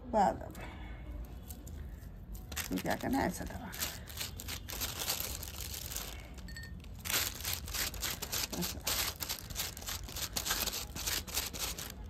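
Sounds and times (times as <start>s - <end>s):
plastic sheet crinkling: 2.4s - 12.0s.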